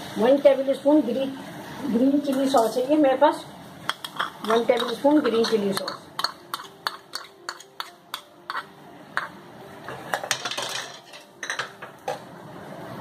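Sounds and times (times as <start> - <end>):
spatula clinking on metal pan: 3.9 - 9.4
spatula scraping metal pan: 4.0 - 10.4.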